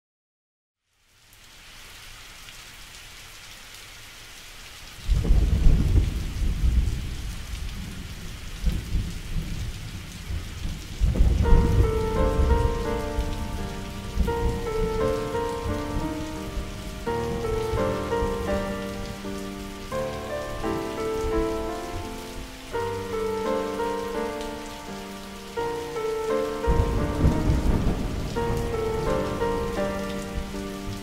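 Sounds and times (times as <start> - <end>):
rain hiss: 0.8 - 31.0
deep thunder rumble: 5.1 - 19.4, 26.6 - 31.0
sustained music notes: 11.4 - 31.0.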